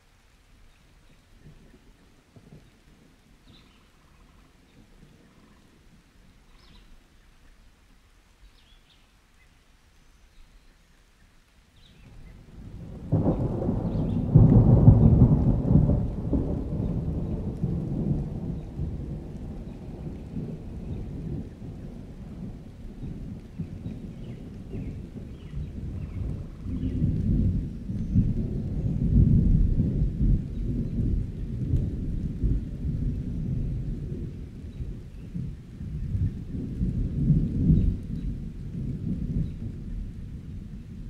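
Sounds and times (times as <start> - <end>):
steady rain: 0.0 - 41.0
thunder rumbling: 12.0 - 41.0.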